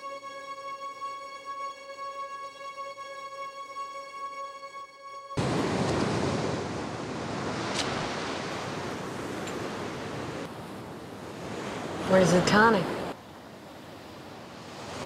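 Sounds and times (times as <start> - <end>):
soft music: 0.0 - 5.4
surf breaking on rocky beach: 5.4 - 10.5.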